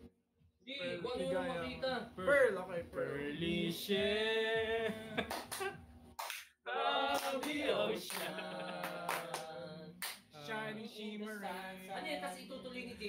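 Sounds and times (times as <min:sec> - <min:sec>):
men singing a cappella: 0:00.8 - 0:01.8, 0:02.8 - 0:05.3, 0:06.7 - 0:12.0
hand claps keeping time: 0:05.2 - 0:06.5, 0:07.1 - 0:10.3.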